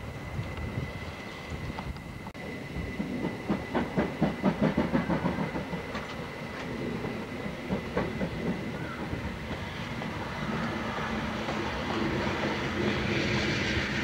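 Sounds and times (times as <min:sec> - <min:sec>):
train rumble: 0:00.0 - 0:14.0
steam train rhythmic beats: 0:02.8 - 0:14.0.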